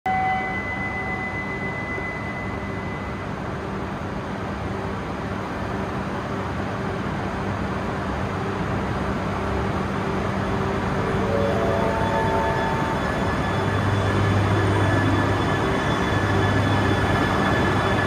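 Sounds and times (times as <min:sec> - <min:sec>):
station platform rumble: 0:00.0 - 0:18.0
thin high tone: 0:00.1 - 0:03.3, 0:10.8 - 0:18.0
train approaching: 0:00.1 - 0:18.0.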